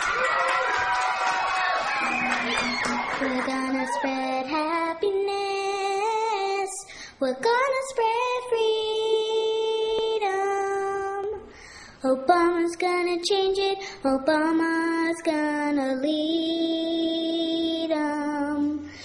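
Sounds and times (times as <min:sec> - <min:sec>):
children singing in unison: 0:02.0 - 0:04.9.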